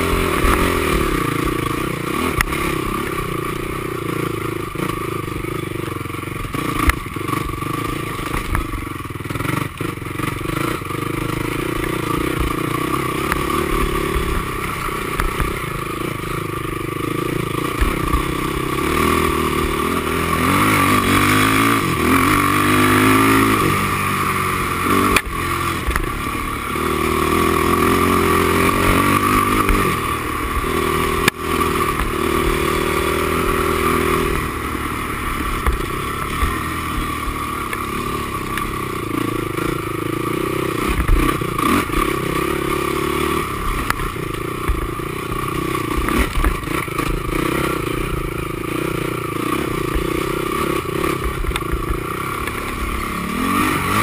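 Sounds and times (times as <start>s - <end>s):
quad engine revving: 0.0s - 54.0s
clatter and knocks over rough ground: 6.5s - 9.1s, 40.8s - 42.2s, 45.8s - 47.4s, 51.2s - 53.0s.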